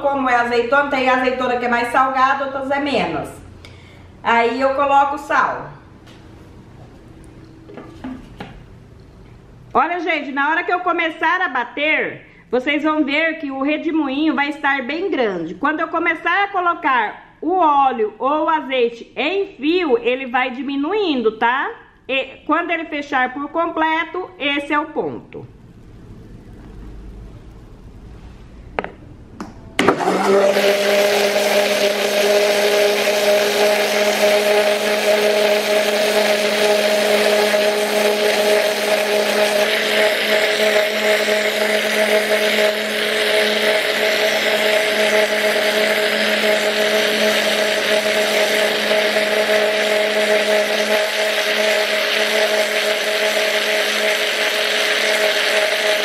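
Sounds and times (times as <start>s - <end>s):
blender running: 29.8s - 56.0s.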